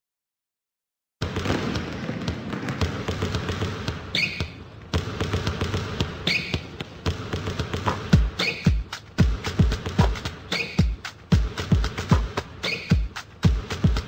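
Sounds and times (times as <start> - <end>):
basketballs bouncing on hard floor: 1.2 - 14.0
short squeak: 4.1 - 4.6, 6.3 - 6.6, 8.4 - 8.8, 10.5 - 10.8, 12.6 - 13.0.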